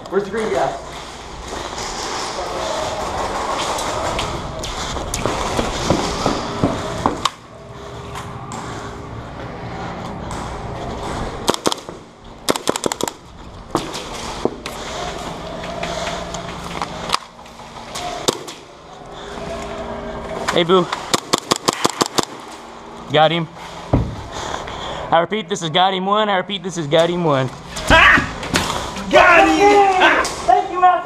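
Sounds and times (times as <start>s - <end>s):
airsoft full-auto burst: 11.5s - 11.9s, 12.5s - 13.2s, 21.1s - 22.4s
airsoft gun single shots: 21.1s - 22.4s.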